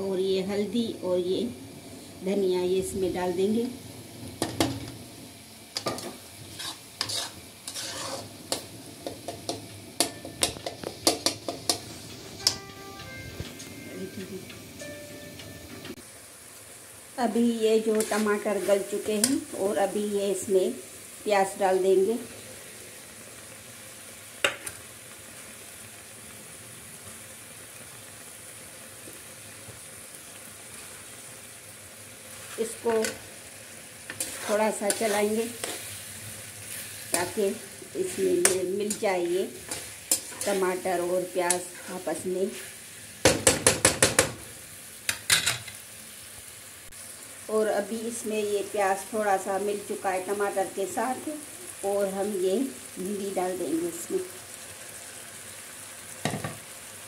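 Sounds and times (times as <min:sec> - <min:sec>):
faint sizzle of frying: 0:00.0 - 0:57.0
metal spatula scraping a pan: 0:05.8 - 0:11.8, 0:17.9 - 0:19.5, 0:34.1 - 0:42.8
spatula clinking against pan: 0:10.0 - 0:11.4.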